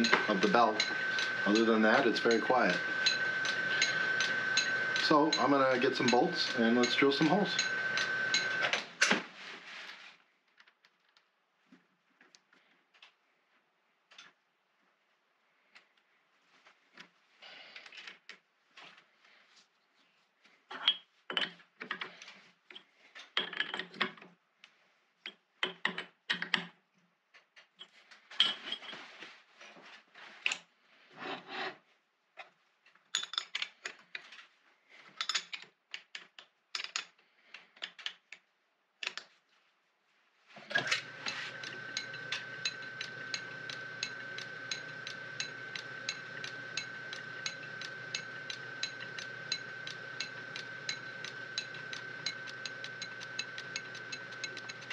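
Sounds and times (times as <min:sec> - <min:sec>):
drive belt clicking: 0:00.0 - 0:08.7, 0:40.7 - 0:54.9
metal lathe running: 0:00.0 - 0:08.8, 0:40.7 - 0:54.9.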